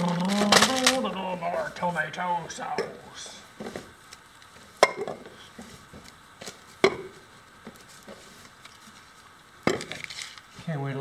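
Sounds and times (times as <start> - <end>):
containers knocking on surface: 4.8 - 5.3, 6.8 - 7.2.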